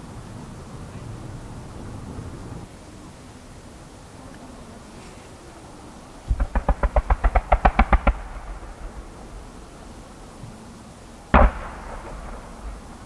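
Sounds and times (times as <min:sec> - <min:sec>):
distant fireworks bangs: 0:06.2 - 0:13.0.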